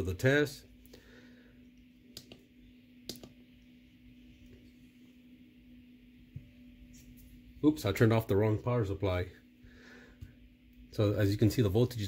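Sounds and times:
faint steady hum: 0.0 - 12.0
power supply switch clicks: 3.1 - 3.4.

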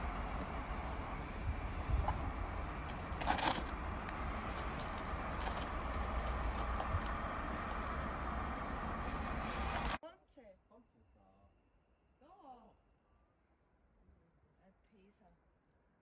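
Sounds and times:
diesel rail vehicles idling: 0.0 - 10.0.

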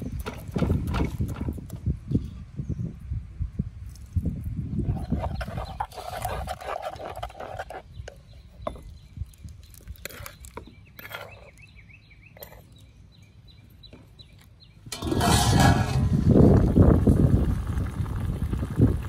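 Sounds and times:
spoon scraping in mortar: 4.8 - 8.0, 9.9 - 11.7, 14.9 - 16.4.

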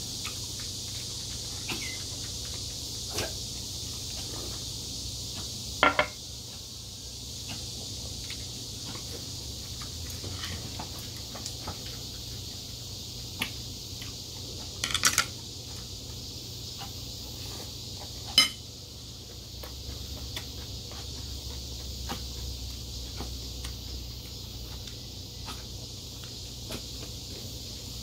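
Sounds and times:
steady high hiss: 0.0 - 28.0
spoon clinking against ceramic bowl: 18.4 - 18.6.

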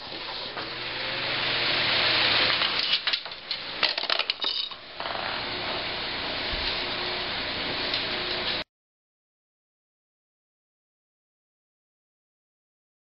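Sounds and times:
electric fan running: 0.0 - 8.6
metal ball clattering down ramp: 2.8 - 5.2.

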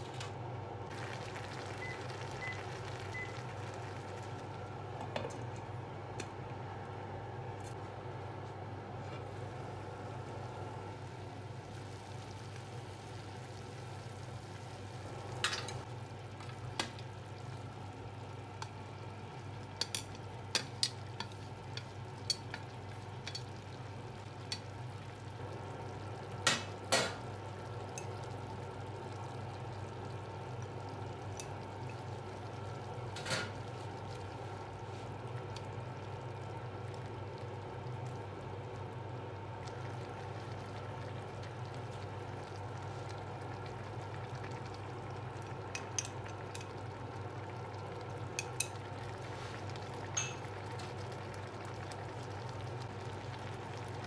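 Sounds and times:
stew simmering in a pan: 0.8 - 54.0.

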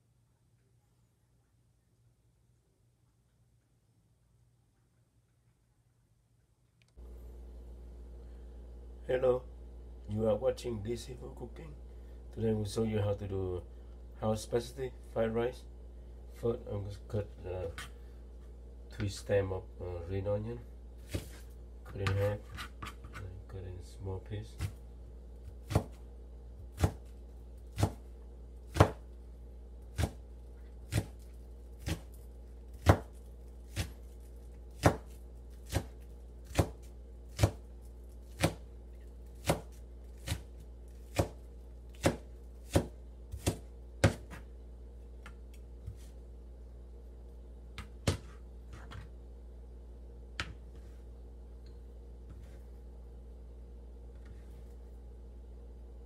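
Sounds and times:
knife chopping on plastic board: 21.0 - 23.2, 25.4 - 26.0, 26.6 - 27.1, 27.7 - 28.1, 28.7 - 29.0, 29.9 - 30.2, 30.9 - 31.2, 31.8 - 34.0, 34.7 - 37.7, 38.3 - 38.7, 39.3 - 44.5, 47.8 - 49.1.

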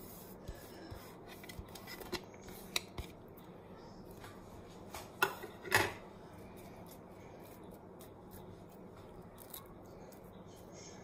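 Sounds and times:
hand rubbing onion on tray: 0.0 - 2.8.

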